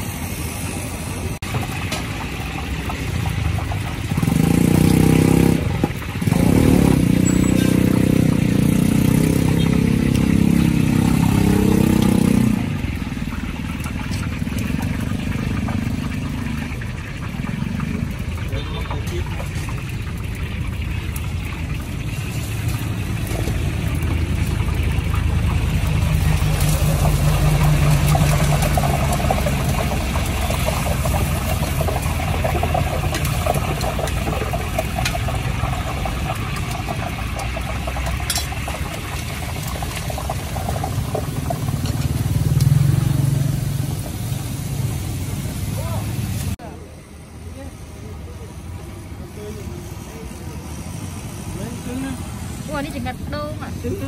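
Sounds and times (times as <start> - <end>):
vehicle engines passing: 0.8 - 54.0.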